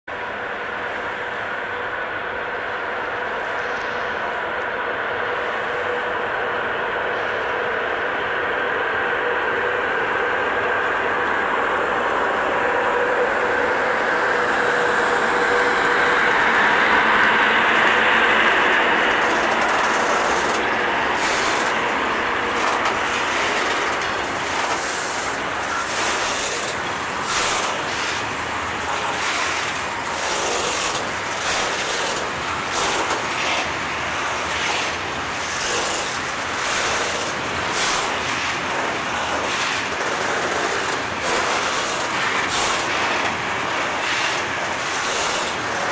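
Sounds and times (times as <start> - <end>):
electric locomotive humming past: 0.1 - 45.9
train wheels clacking over rail joints: 13.7 - 45.9.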